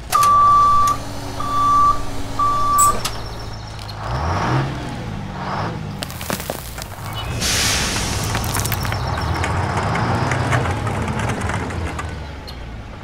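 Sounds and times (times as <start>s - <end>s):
truck reversing beeper: 0.0s - 4.7s, 6.5s - 9.4s
engine rumble: 0.0s - 13.0s
bursts of hiss: 7.0s - 9.0s.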